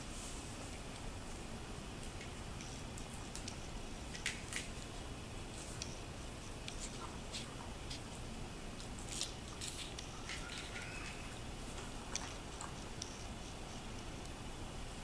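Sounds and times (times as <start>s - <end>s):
puppy licking and chewing: 5.6s - 14.3s.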